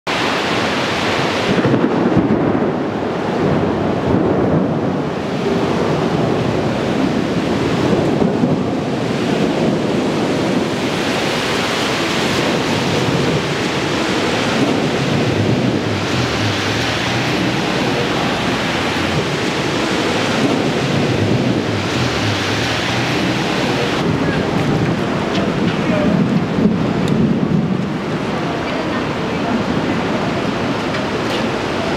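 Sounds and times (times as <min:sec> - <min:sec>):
rain and wind rushing: 0:00.1 - 0:31.9
low rumble: 0:12.3 - 0:28.5.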